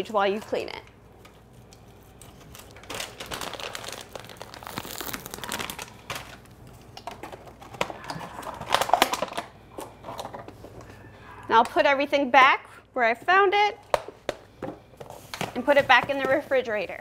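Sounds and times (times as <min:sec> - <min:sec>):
plastic bag crinkling: 0:02.1 - 0:09.5.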